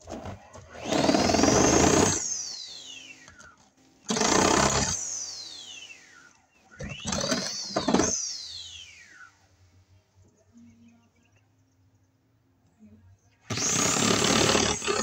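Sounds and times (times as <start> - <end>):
power tool motor whine: 0.2 - 9.3, 13.5 - 15.0.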